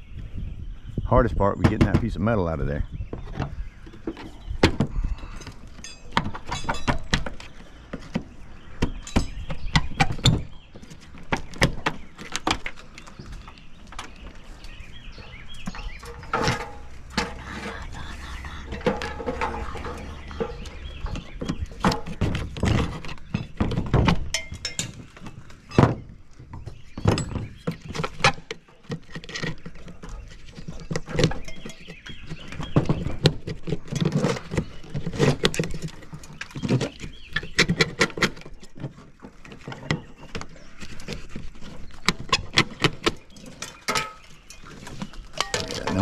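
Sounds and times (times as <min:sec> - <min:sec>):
metal gutter thunking and clanking: 0:15.2 - 0:17.5.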